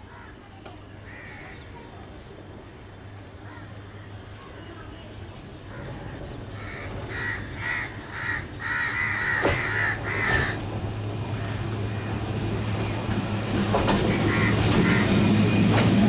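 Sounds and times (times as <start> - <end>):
crow cawing: 1.1 - 1.6, 6.6 - 10.6, 14.3 - 15.2
electric train humming: 6.1 - 16.0.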